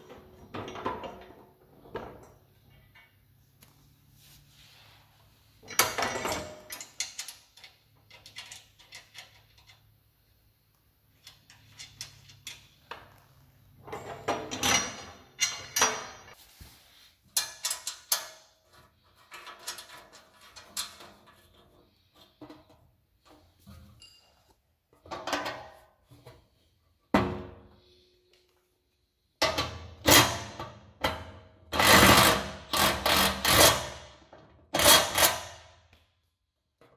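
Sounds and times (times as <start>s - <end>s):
metal parts clunking and rattling: 0.0s - 3.2s, 5.6s - 9.9s, 11.2s - 13.2s, 13.8s - 16.4s, 17.3s - 26.5s.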